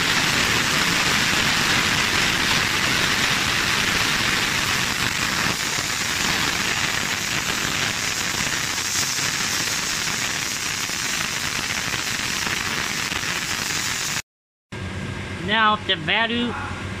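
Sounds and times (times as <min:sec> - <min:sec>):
gas hissing from hose: 0:00.0 - 0:14.2.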